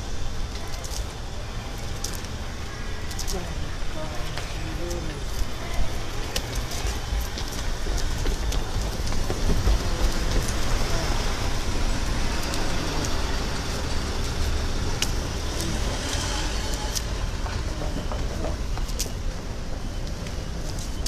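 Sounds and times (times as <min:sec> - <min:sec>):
street traffic rumble: 0:00.0 - 0:21.0.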